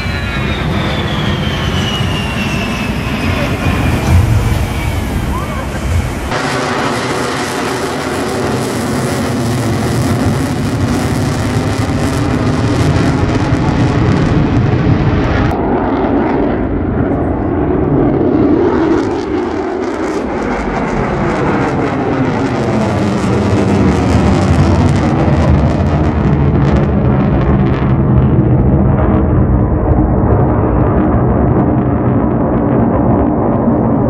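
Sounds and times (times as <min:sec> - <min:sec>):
deep jet rumble: 0:00.0 - 0:34.0
jet engine roar with high hiss: 0:00.0 - 0:34.0.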